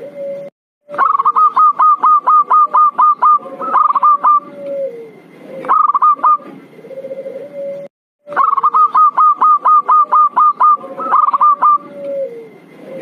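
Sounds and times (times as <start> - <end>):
dove cooing: 0.0 - 13.0.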